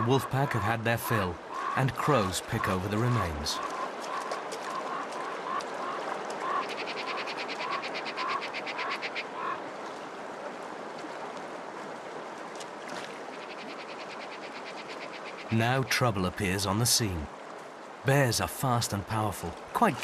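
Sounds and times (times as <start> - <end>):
flowing river water: 0.0 - 20.0.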